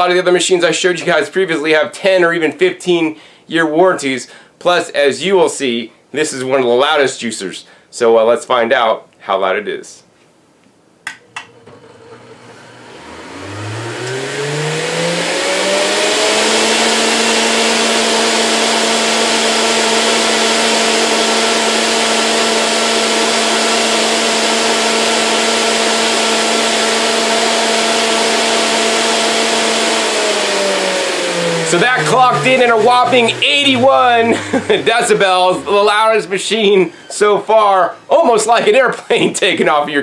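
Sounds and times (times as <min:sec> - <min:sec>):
juicer motor whining: 0:11.2 - 0:36.3
juicer switch click: 0:14.0 - 0:14.2.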